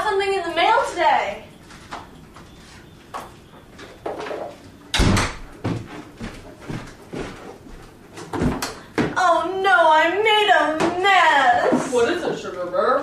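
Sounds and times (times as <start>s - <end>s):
light knocks and steps: 1.6s - 9.2s
front door shutting thud: 4.3s - 5.8s.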